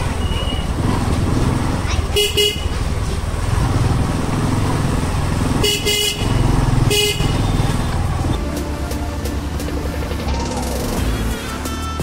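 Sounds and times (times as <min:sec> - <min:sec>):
engine rumble: 0:00.0 - 0:12.0
wind: 0:00.0 - 0:12.0
vehicle horn honking: 0:02.2 - 0:02.8, 0:05.6 - 0:07.9, 0:11.0 - 0:12.0.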